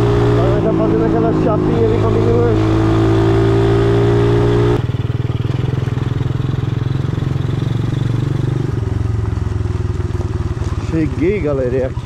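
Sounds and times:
small motorbike engine running: 0:04.8 - 0:12.0.

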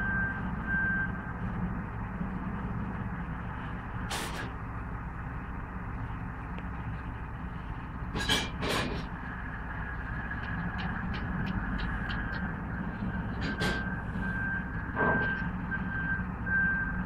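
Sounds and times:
heavy machinery engine rumble: 0:00.0 - 0:17.0.

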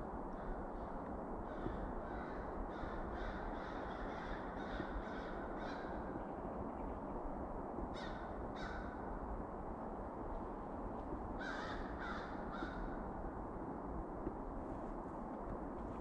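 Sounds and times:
crows cawing: 0:00.4 - 0:06.0, 0:07.9 - 0:09.1, 0:11.4 - 0:13.1
steady low rumble: 0:05.9 - 0:16.0.

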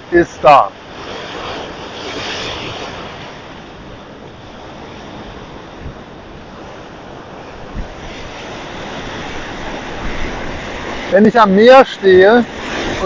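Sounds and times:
surf breaking on rocky shore: 0:00.0 - 0:13.0
wind buffeting microphone: 0:00.0 - 0:13.0.

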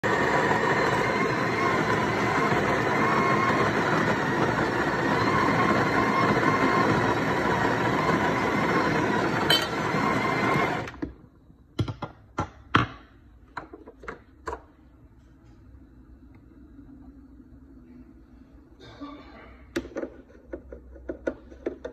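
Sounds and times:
coffee grinder running: 0:00.0 - 0:11.0.

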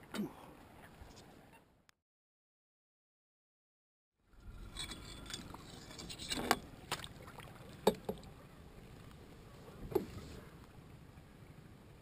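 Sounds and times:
water splashing and lapping: 0:04.4 - 0:10.6.

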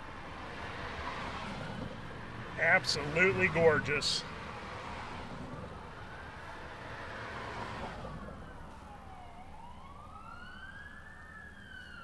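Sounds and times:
fire engine siren wailing: 0:05.6 - 0:12.0.

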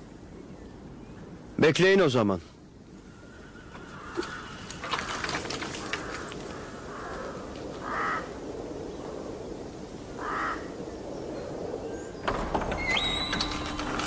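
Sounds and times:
bird cawing: 0:03.0 - 0:08.4, 0:10.2 - 0:10.8
clatter of knocks: 0:04.2 - 0:06.5, 0:12.2 - 0:14.0.

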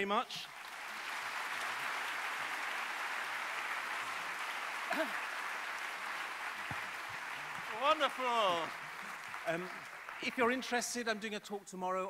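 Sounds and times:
audience applauding: 0:00.0 - 0:11.1.

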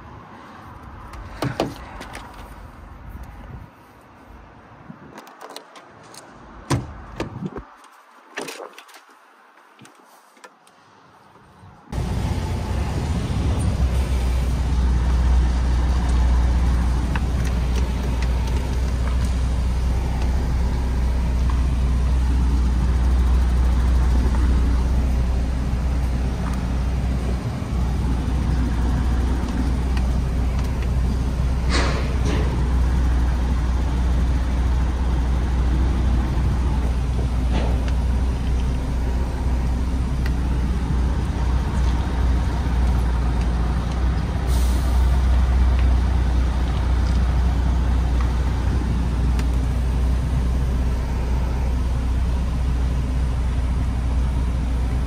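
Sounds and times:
road noise: 0:00.0 - 0:55.0
truck diesel engine rumbling: 0:11.9 - 0:55.0.

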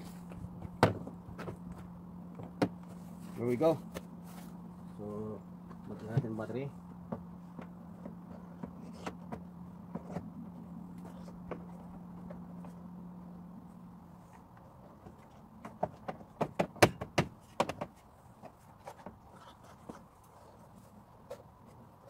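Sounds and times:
low hum: 0:00.0 - 0:15.6.

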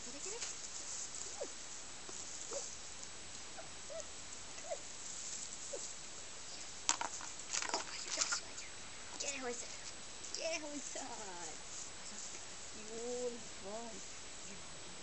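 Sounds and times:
plastic disc and paws on gravel: 0:06.6 - 0:09.8.

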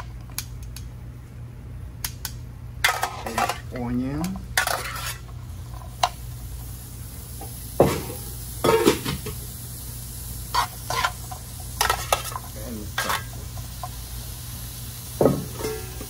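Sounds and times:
metal tongs scraping a pan: 0:02.8 - 0:03.7, 0:04.6 - 0:05.3, 0:10.5 - 0:13.4
vegetables sizzling: 0:02.8 - 0:16.0.

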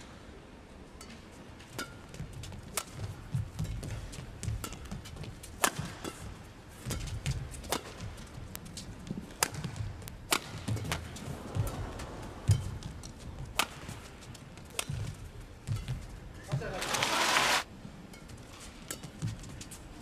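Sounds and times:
rackets striking shuttlecock: 0:01.6 - 0:14.0.

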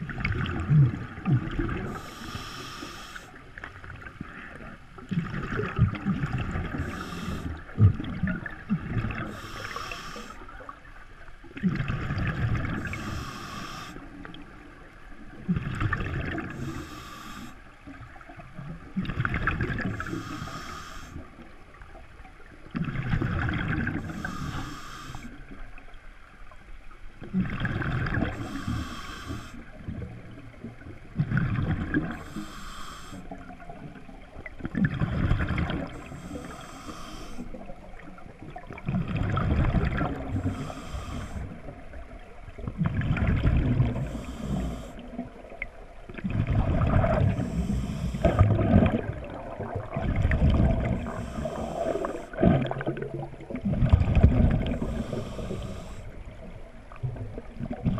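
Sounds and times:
exhaled bubbles rushing: 0:00.0 - 0:02.0, 0:05.1 - 0:09.4, 0:15.4 - 0:16.6, 0:34.5 - 0:36.1, 0:38.2 - 0:40.5, 0:42.5 - 0:44.1, 0:46.1 - 0:55.9
regulator inhale hiss: 0:01.9 - 0:03.4, 0:06.7 - 0:07.7, 0:09.3 - 0:10.5, 0:12.7 - 0:14.2, 0:16.4 - 0:17.7, 0:19.8 - 0:21.4, 0:24.0 - 0:25.5, 0:28.3 - 0:29.8, 0:32.1 - 0:33.5, 0:35.8 - 0:37.7, 0:40.3 - 0:41.8, 0:43.9 - 0:45.2, 0:47.2 - 0:48.5, 0:50.9 - 0:52.4, 0:54.6 - 0:56.3.

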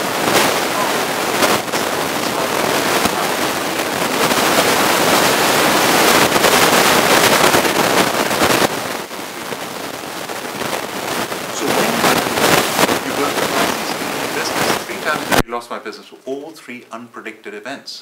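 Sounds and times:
audience applauding: 0:00.0 - 0:07.9, 0:11.5 - 0:15.2.

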